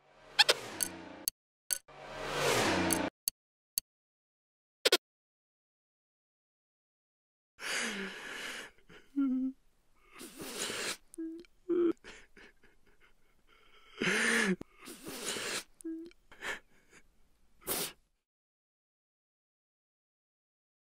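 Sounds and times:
breathy gasps or sighs: 7.6 - 11.0
hummed or grunted tones: 8.9 - 10.3, 11.1 - 12.3.

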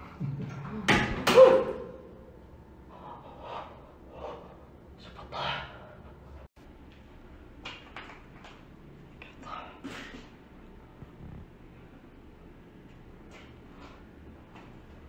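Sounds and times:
person breathing: 2.8 - 6.4.

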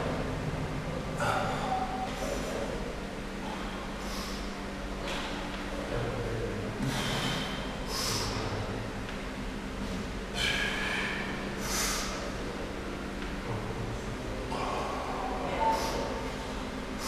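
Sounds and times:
man breathing forcefully: 1.2 - 2.7, 3.4 - 5.6, 6.8 - 8.6, 10.3 - 12.3.

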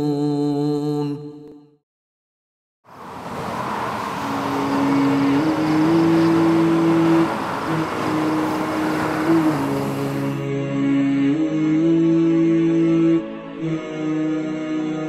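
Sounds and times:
highway traffic roar: 2.9 - 10.5.

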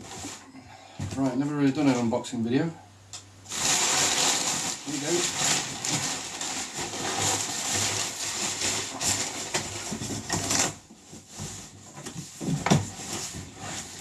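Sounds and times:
packing paper rustling and crinkling: 3.4 - 14.0
cardboard scraping and knocking: 5.0 - 14.0.

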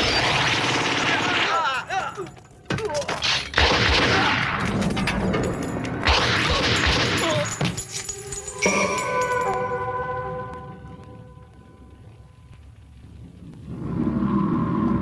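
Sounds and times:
gunfire volleys: 3.5 - 4.9, 6.0 - 7.5.

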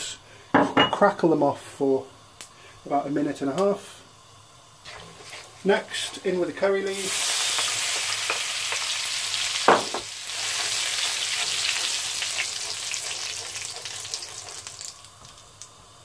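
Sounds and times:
leaves and spices sizzling in oil: 1.2 - 16.0
knock: 9.7 - 10.1
wooden spoon stirring wok: 10.3 - 14.9.

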